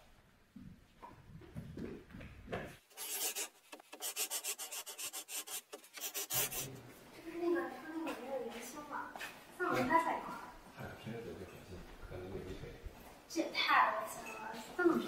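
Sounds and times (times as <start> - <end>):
fast thin dry scrapes: 2.9 - 6.7.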